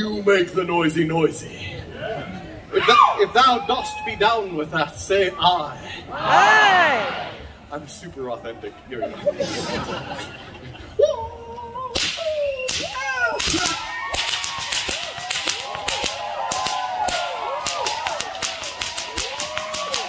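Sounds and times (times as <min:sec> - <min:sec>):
crowd whooping and yelling: 0:02.7 - 0:04.7, 0:06.1 - 0:07.5, 0:12.4 - 0:20.0
whips cracking: 0:11.9 - 0:20.0.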